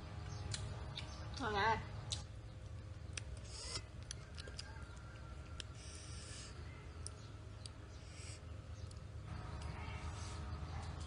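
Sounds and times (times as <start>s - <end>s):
fingers peeling fruit clicks: 0.2s - 1.4s, 2.1s - 5.9s, 6.9s - 8.0s.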